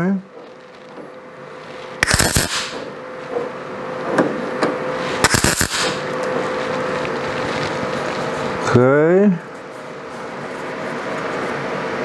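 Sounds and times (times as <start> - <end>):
steady hum: 0.0 - 12.0
welder arc crackling: 1.6 - 2.8, 5.0 - 8.7.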